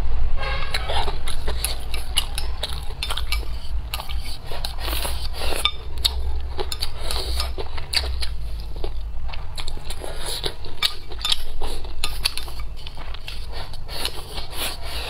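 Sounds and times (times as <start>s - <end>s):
steady low hum: 0.0s - 15.0s
chopsticks scraping ceramic bowl: 0.7s - 8.1s
close chewing: 0.7s - 15.0s.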